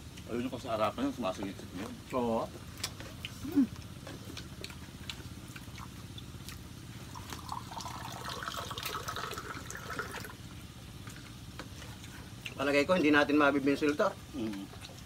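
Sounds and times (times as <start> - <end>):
wet chewing and lip-smacking: 0.0 - 0.6, 1.3 - 7.6, 11.0 - 12.8, 13.8 - 15.0.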